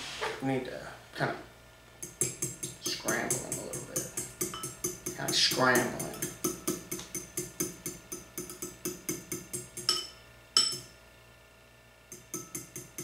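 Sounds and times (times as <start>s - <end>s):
fork knocking on bowl: 2.0s - 10.9s, 12.1s - 13.0s
fork clinking on ceramic bowl: 4.0s - 5.1s, 6.0s - 10.9s, 12.1s - 13.0s.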